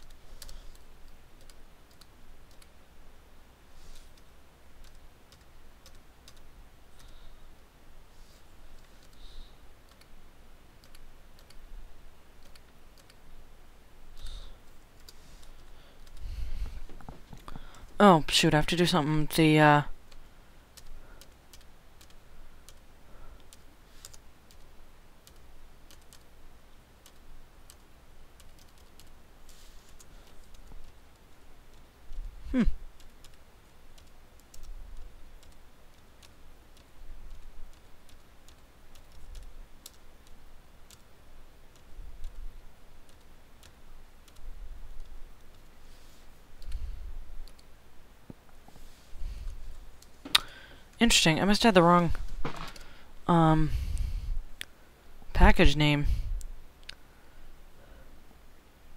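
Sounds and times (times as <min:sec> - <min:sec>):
keyboard and mouse clicking: 0:00.0 - 0:02.7, 0:04.1 - 0:07.2, 0:08.8 - 0:09.2, 0:09.9 - 0:10.1, 0:10.8 - 0:11.6, 0:12.4 - 0:13.2, 0:20.8 - 0:22.8, 0:23.4 - 0:26.3, 0:27.0 - 0:29.2, 0:33.0 - 0:41.1, 0:43.0 - 0:45.7, 0:46.6 - 0:46.8, 0:47.4 - 0:47.7
low steady hum: 0:00.0 - 0:58.9.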